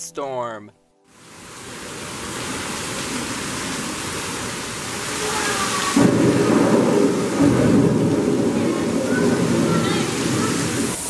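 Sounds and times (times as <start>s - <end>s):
artificial rain hissing: 1.1s - 11.0s
low thunder rumble: 5.9s - 11.0s.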